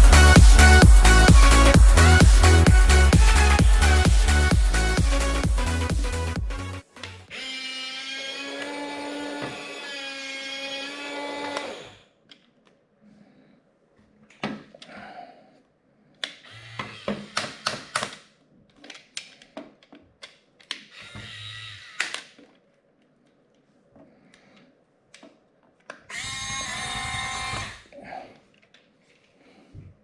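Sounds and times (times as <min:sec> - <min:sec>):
music: 0:00.0 - 0:07.3
toy electric motors whirring: 0:16.2 - 0:18.3, 0:20.7 - 0:22.4, 0:26.1 - 0:27.8
plastic gears clicking: 0:16.2 - 0:22.4.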